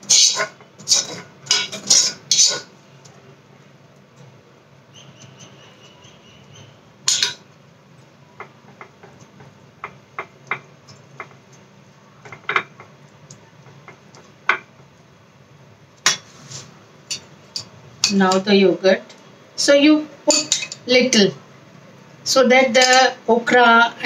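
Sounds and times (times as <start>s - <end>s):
spoon scraping pan and dish: 0.0s - 2.7s, 7.1s - 7.4s, 20.3s - 20.8s
thin scraping whine: 0.0s - 3.3s.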